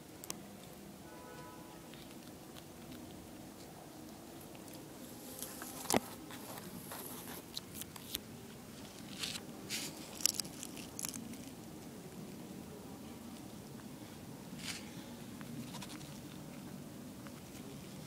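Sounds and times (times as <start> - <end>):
rat rustling through grass: 3.6 - 12.4.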